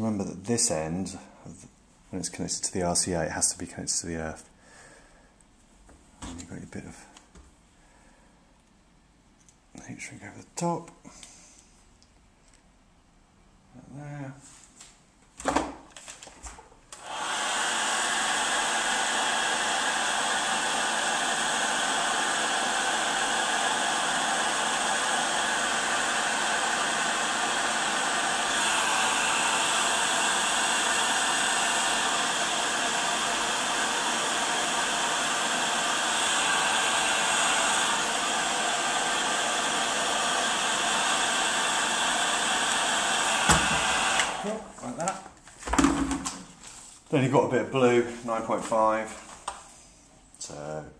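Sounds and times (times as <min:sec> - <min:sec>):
heat gun fan rushing: 0:16.9 - 0:44.7.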